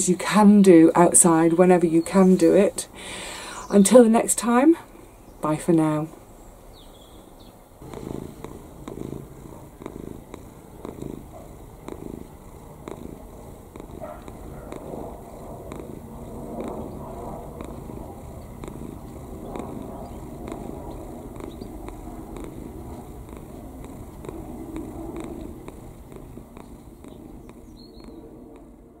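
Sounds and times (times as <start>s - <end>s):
cat purring: 7.8s - 29.0s.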